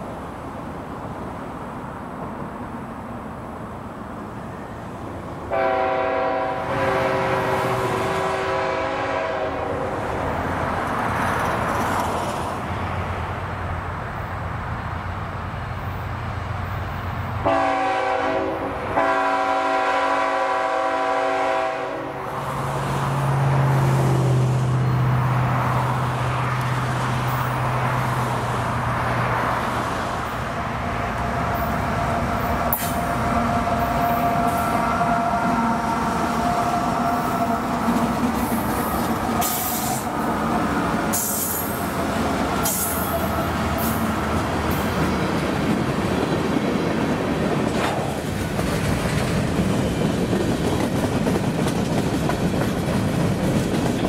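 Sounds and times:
locomotive engine humming: 0:00.0 - 0:54.0
train rumbling: 0:00.0 - 0:54.0
locomotive air horn blasts: 0:05.5 - 0:09.9, 0:17.4 - 0:22.3, 0:32.4 - 0:38.0.

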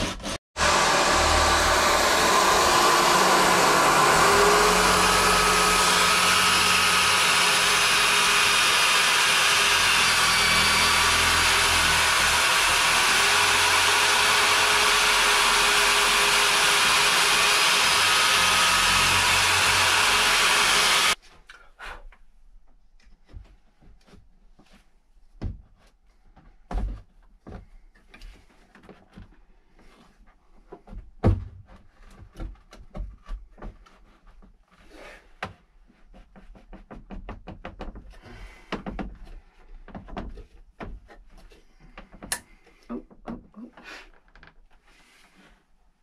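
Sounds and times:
power drill sanding: 0:00.0 - 0:21.2.

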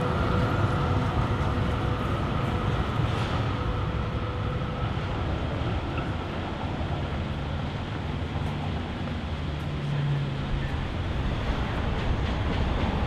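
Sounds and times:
faint whine: 0:00.0 - 0:07.1
city traffic rumble: 0:00.0 - 0:13.0
electric train on viaduct: 0:00.0 - 0:13.0.

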